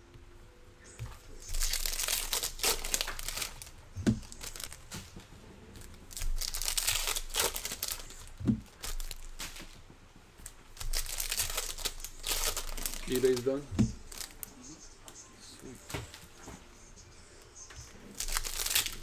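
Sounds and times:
foil packs crinkling: 1.4s - 5.1s, 5.8s - 9.8s, 10.7s - 14.5s, 18.1s - 19.0s.

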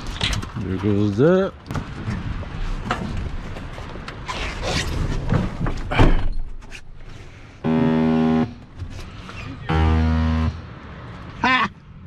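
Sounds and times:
knocks and rattles of handling: 0.0s - 7.1s
steady pitched tone: 7.6s - 8.6s.

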